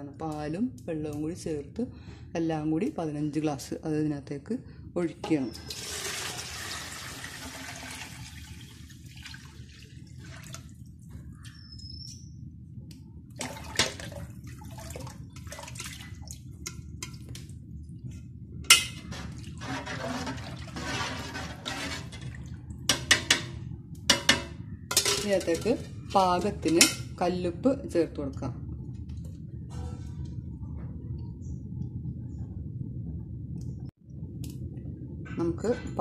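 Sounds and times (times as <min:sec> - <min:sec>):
steady low hum: 0:00.0 - 0:36.0
liquid pouring and splashing: 0:05.6 - 0:10.8, 0:13.4 - 0:17.3, 0:19.0 - 0:22.6.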